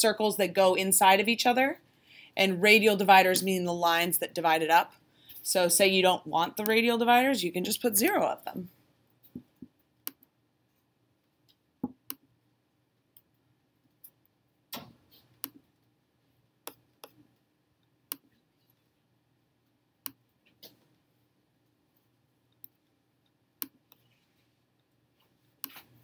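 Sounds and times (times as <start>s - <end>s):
faint room hum: 0.0s - 26.0s
computer mouse clicks: 14.8s - 15.6s, 18.1s - 18.3s, 25.6s - 25.9s.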